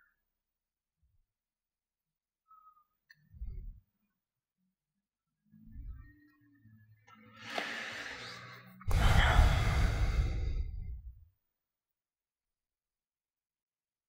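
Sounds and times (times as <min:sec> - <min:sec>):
person sighing: 0:08.9 - 0:10.8.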